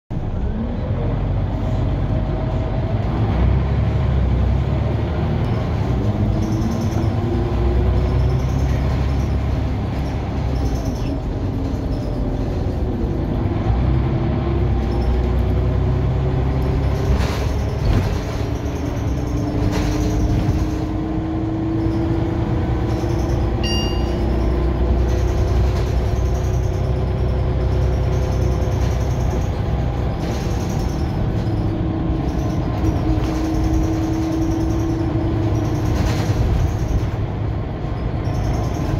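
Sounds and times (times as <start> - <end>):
bus diesel engine rumbling: 0.1 - 38.9
short high beep: 23.6 - 24.4.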